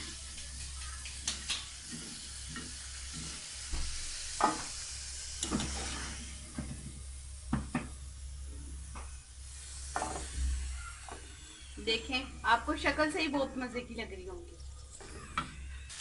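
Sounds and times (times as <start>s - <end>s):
hot oil sizzling in a wok: 0.0s - 13.5s, 15.6s - 16.0s
metal ladle scraping a pan: 5.4s - 6.3s.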